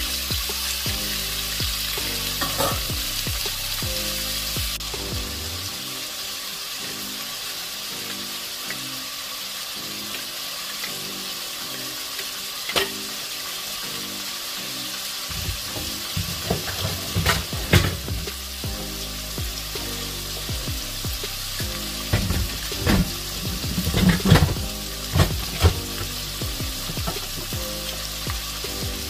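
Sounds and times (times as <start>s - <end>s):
chicken sizzling in oil: 0.0s - 29.0s
oil popping: 15.3s - 18.8s, 20.4s - 28.8s.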